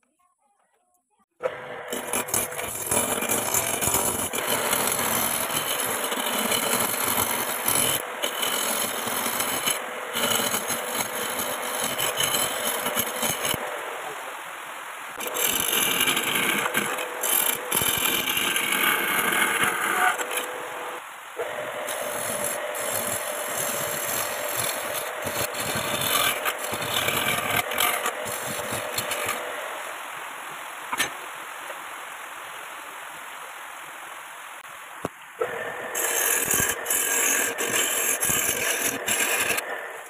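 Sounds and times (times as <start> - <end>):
wood lathe running: 1.4 - 13.8, 15.2 - 29.7, 35.4 - 40.0
chisel scraping hard wood: 1.8 - 13.7, 15.2 - 29.5, 35.9 - 39.8.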